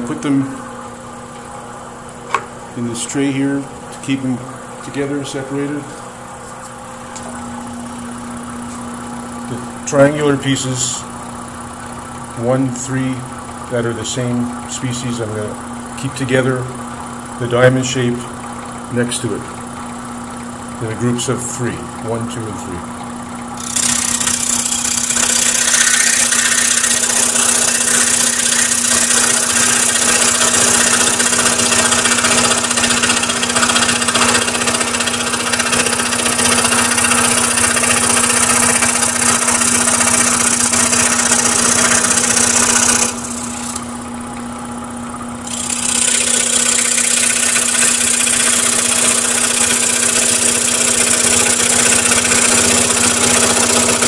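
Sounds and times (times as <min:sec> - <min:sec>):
scroll saw motor hum: 0:00.0 - 0:54.0
saw blade rasping through wood: 0:23.6 - 0:43.9, 0:45.5 - 0:54.0.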